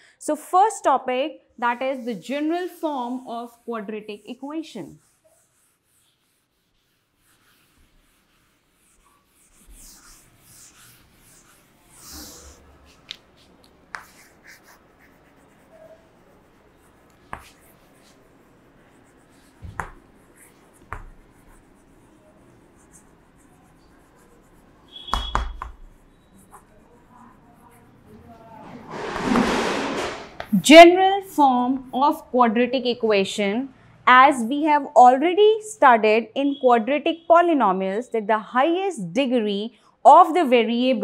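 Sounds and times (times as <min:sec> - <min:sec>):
duster rubbing chalkboard: 0:01.7 - 0:30.6
chalk writing on board: 0:01.8 - 0:29.4.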